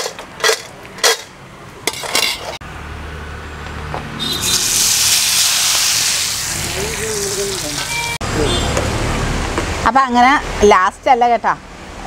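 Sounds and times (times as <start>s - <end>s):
food sizzling in hot oil: 4.2s - 8.2s.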